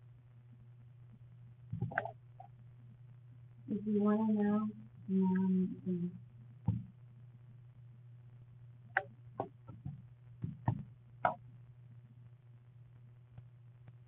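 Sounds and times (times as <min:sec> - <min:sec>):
steady low hum: 0:00.0 - 0:14.0
phone knocks and clicks: 0:09.4 - 0:11.4.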